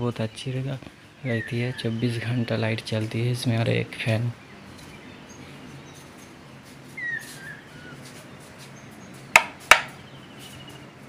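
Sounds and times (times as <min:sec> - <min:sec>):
bird chirp: 0:00.0 - 0:11.0.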